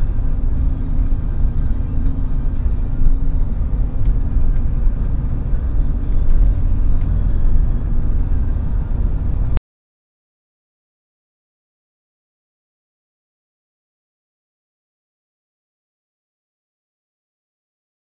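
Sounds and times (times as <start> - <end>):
car engine and road rumble: 0.0 - 9.6.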